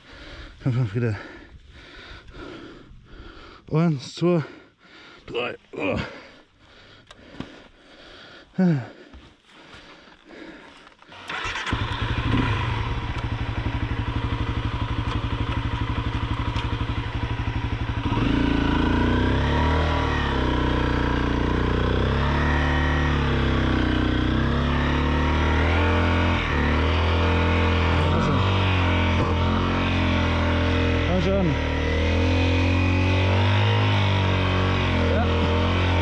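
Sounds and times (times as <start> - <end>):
motorcycle engine revving: 11.1 - 36.0.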